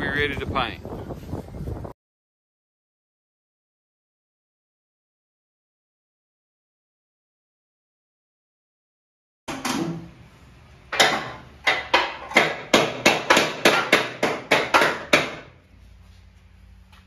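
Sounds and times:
hammer striking metal: 10.9s - 15.5s.

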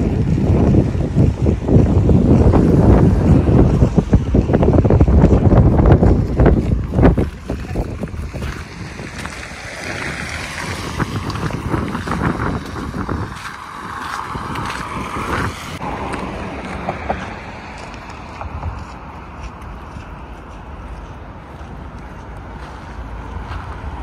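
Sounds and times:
car traffic passing: 0.0s - 24.0s
wind buffeting microphone: 0.0s - 24.0s.

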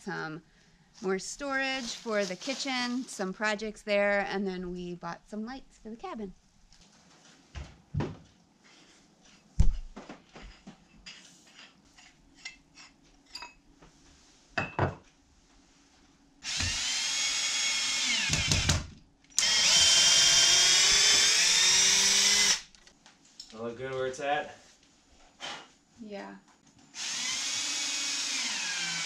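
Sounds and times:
cordless drill running: 16.4s - 18.8s, 19.4s - 22.8s, 27.0s - 29.0s.

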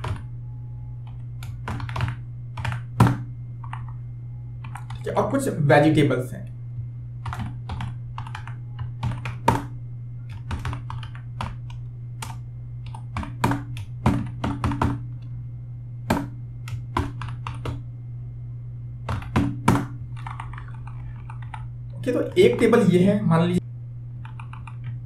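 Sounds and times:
keyboard typing: 0.0s - 0.3s, 1.0s - 4.0s, 4.6s - 5.1s, 7.2s - 15.3s, 16.1s - 17.8s, 19.0s - 22.8s, 24.2s - 25.0s
steady low hum: 0.0s - 25.0s.

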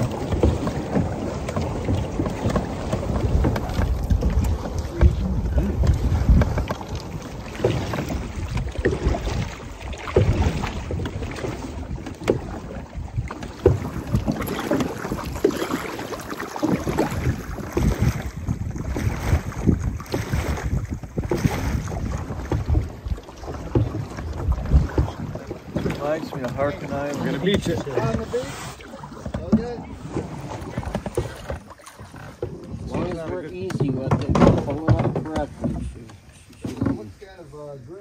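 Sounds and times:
paddles pulling through water: 0.0s - 38.0s
water swishing along hull: 0.0s - 38.0s
wind rumbling on microphone: 0.0s - 38.0s.

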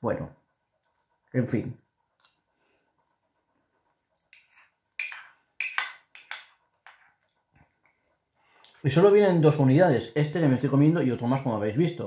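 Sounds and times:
spoon scraping glass pot: 4.3s - 7.2s.

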